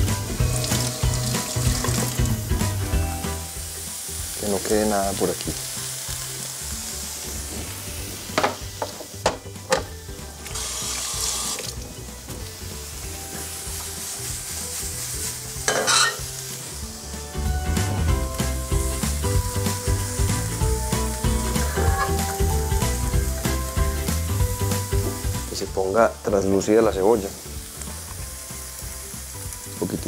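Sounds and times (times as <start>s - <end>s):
food sizzling in oil: 0.0s - 30.0s
utensil knocking on pan: 8.4s - 9.9s, 15.7s - 16.2s.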